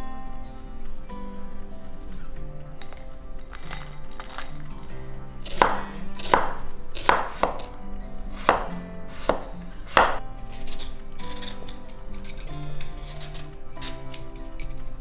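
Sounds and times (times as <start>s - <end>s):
knife scraping: 5.4s - 15.0s
knife chopping on wooden board: 5.5s - 7.8s, 8.4s - 10.2s.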